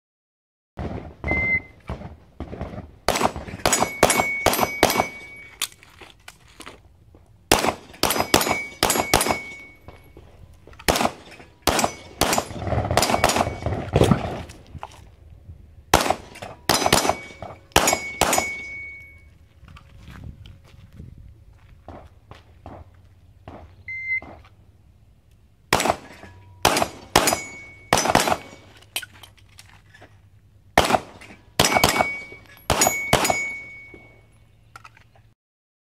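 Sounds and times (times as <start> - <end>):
steel target ringing ping: 8.0 - 10.2, 16.7 - 19.3, 26.2 - 28.7, 31.6 - 34.3
handgun shots: 10.8 - 14.2, 25.7 - 28.6.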